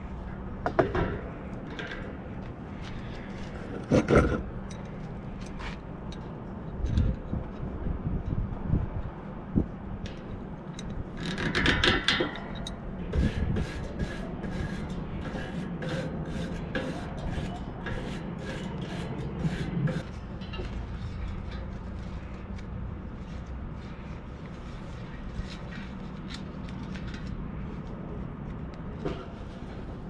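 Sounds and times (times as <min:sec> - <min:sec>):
hands rubbing bicycle wheel rim: 0:13.2 - 0:26.4.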